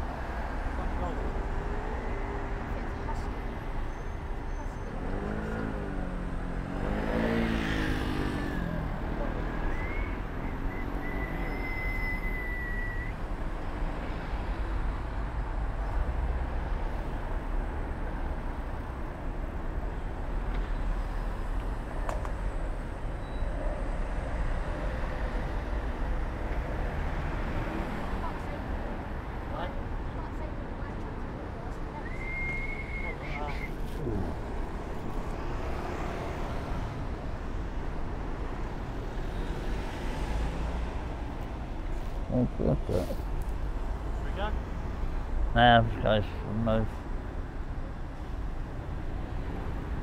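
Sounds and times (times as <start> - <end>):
thin high whistle: 9.7 - 13.2, 32.0 - 33.8
wavering voice-like sound: 33.2 - 34.4.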